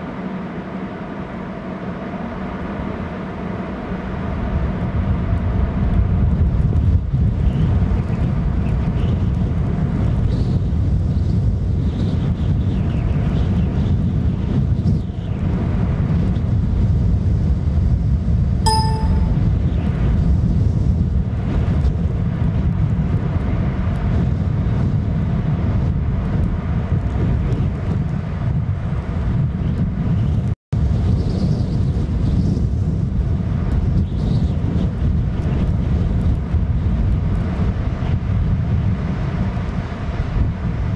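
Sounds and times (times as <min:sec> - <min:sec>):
gusting wind on microphone: 0:01.5 - 0:40.9
ringing ding: 0:18.7 - 0:19.5.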